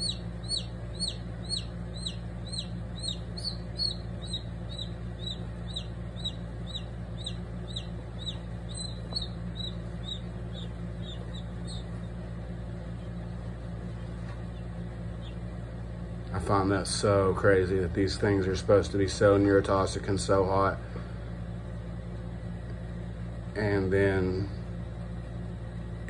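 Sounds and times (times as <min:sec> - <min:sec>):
chick peeping in distress: 0:00.0 - 0:12.7
low hum: 0:00.0 - 0:26.0.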